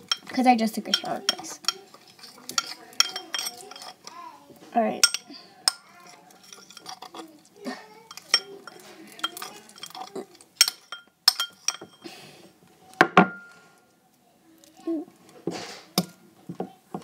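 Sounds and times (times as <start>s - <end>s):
spoon clinking against a bowl: 0.0s - 4.2s, 5.0s - 7.3s, 8.1s - 12.1s.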